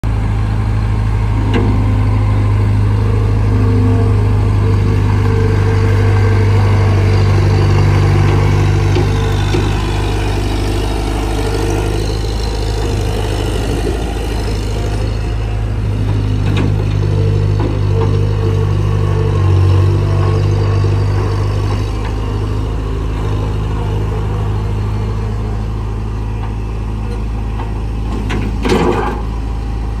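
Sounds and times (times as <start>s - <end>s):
diesel engine running: 0.0s - 30.0s.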